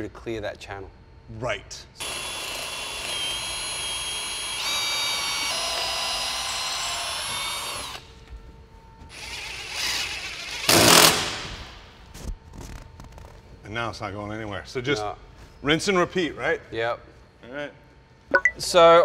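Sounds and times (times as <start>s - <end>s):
power drill driving a screw: 2.0s - 8.0s, 9.1s - 11.6s
loud rasping burst: 9.2s - 11.8s.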